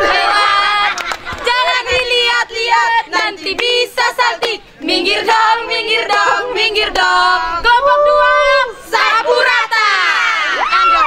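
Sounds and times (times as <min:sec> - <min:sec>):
group singing cheer song: 0:00.0 - 0:10.7.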